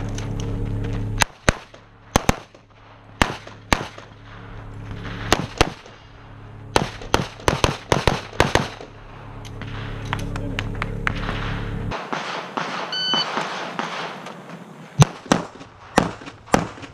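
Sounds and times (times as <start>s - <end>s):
pistol shots: 1.2s - 4.2s, 5.0s - 6.0s, 6.7s - 8.9s, 11.1s - 16.9s.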